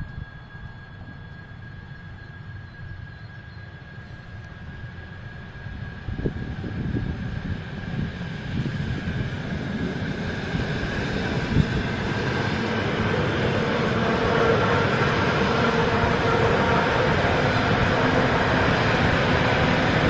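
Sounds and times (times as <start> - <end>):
electric train passing: 0.0 - 20.0.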